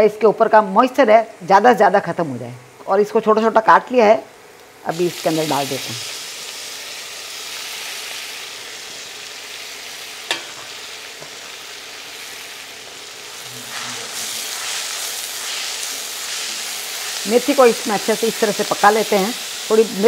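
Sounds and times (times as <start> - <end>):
leaves sizzling in hot oil: 4.6 - 20.0
spatula stirring in pan: 13.2 - 18.8.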